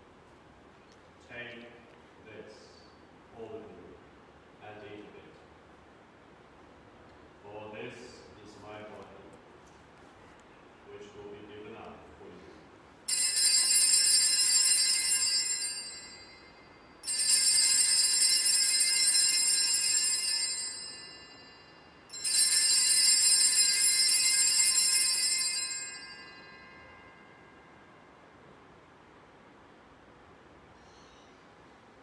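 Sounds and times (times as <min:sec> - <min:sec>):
altar bells ringing: 0:13.1 - 0:28.1.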